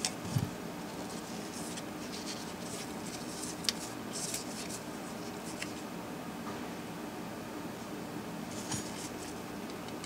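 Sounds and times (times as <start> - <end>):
hands working wires: 0.0 - 5.9.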